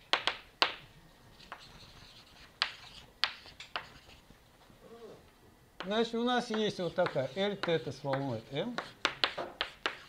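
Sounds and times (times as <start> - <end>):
chalk tapping on blackboard: 0.1 - 0.8, 1.4 - 4.2, 5.8 - 10.0
chalk scratching on blackboard: 1.3 - 4.3, 6.4 - 10.0.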